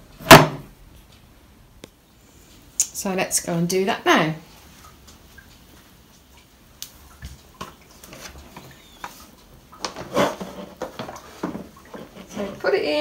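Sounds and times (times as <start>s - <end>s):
plastic box knocking and scraping: 9.8s - 12.6s.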